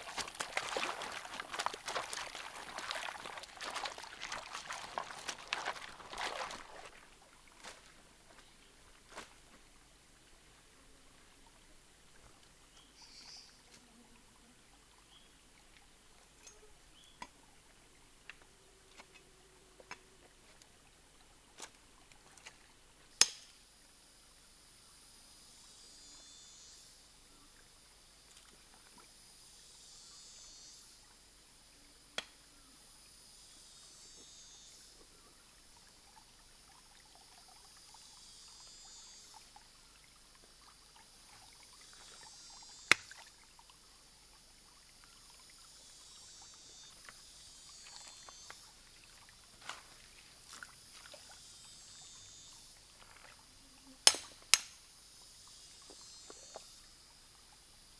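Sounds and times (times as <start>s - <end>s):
faint trickle of water: 0.0s - 54.1s
high insect buzz: 24.4s - 27.2s, 29.1s - 31.1s, 31.7s - 35.0s, 37.6s - 43.7s, 44.8s - 57.9s.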